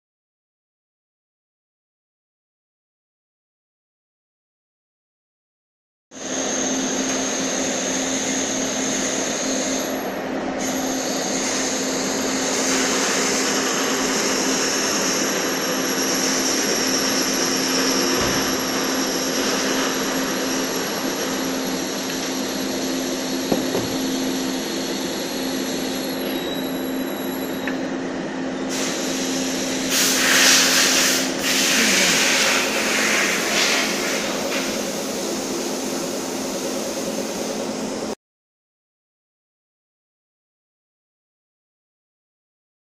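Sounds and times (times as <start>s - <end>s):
machinery running: 6.2s - 30.0s
louder hissy noise: 28.7s - 37.8s.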